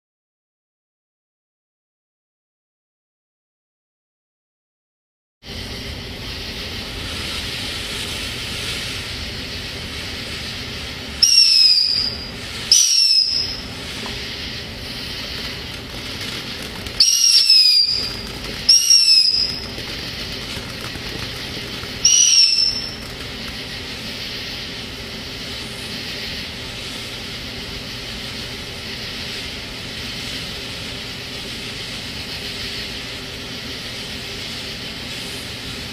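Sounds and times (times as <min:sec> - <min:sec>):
firework whistles: 0:05.4 - 0:35.9
firework fountain hissing: 0:05.5 - 0:35.9.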